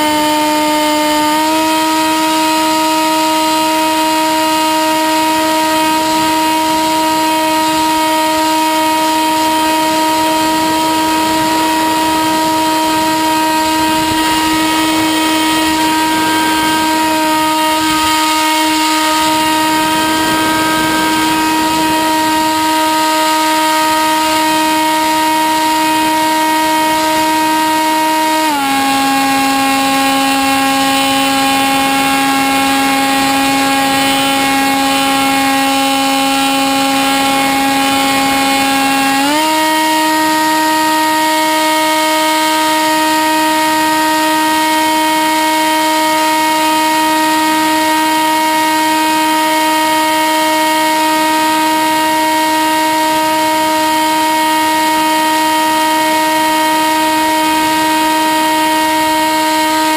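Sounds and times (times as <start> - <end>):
electric motor and propeller whine: 0.0 - 59.9
rushing wind: 10.2 - 22.8.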